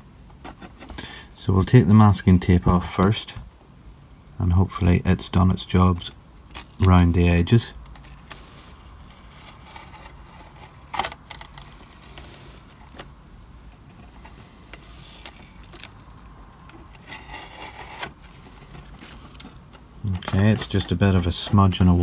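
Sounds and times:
tape crinkling: 6.4 - 13.2, 13.8 - 22.0
tape peeling rustle: 6.4 - 22.0.

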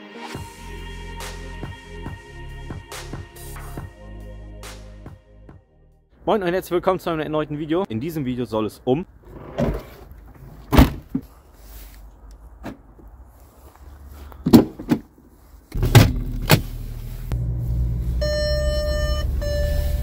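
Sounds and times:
low cabin hum: 15.7 - 20.0
car door thuds: 15.8 - 16.7
warning beep: 18.1 - 20.0.

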